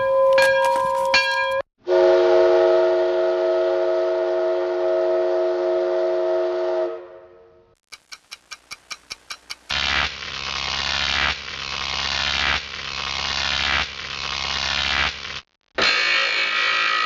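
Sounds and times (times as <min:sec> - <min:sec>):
steam whistle chord: 0:01.9 - 0:07.5.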